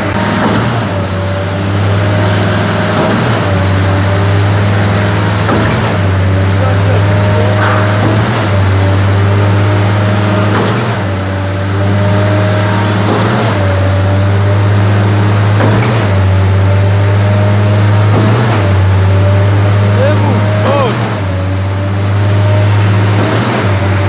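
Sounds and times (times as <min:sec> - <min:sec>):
diesel engine droning: 0:00.0 - 0:24.0
wet concrete pouring: 0:00.0 - 0:24.0
pump knocking: 0:02.4 - 0:11.2, 0:15.4 - 0:16.7, 0:18.0 - 0:19.0.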